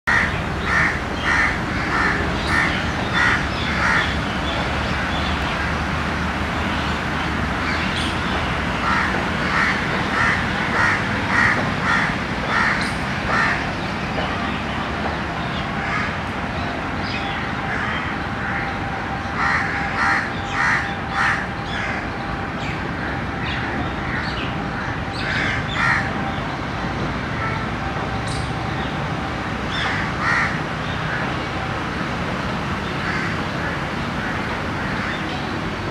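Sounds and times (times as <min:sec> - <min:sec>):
crow cawing: 0:00.1 - 0:04.1, 0:08.8 - 0:13.6.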